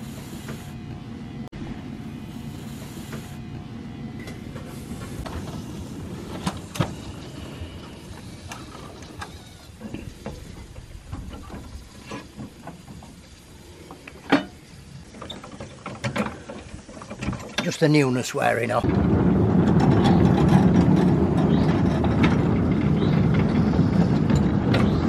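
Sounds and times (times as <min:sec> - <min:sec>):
low steady rumble: 0:00.0 - 0:15.6.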